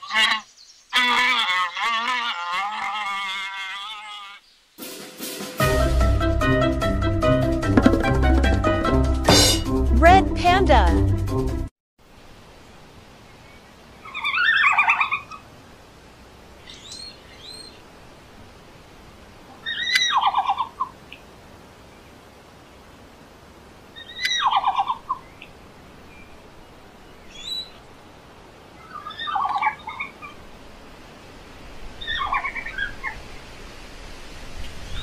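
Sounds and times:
red panda chirping calls: 0:19.6 - 0:20.9.

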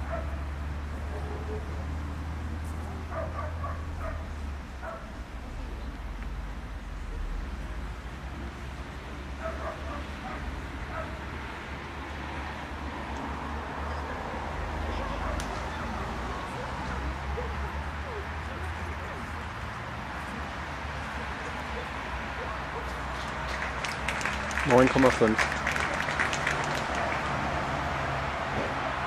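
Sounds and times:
dog barking: 0:00.0 - 0:00.4, 0:01.1 - 0:01.7, 0:02.9 - 0:05.1, 0:09.4 - 0:11.2, 0:15.0 - 0:15.5, 0:21.8 - 0:22.9.

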